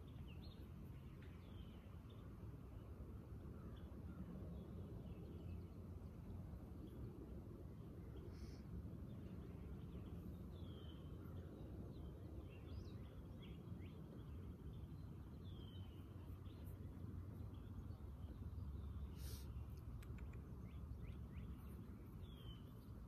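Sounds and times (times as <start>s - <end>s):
low steady rumble: 0.0s - 23.0s
faint bird chirps: 8.0s - 23.0s.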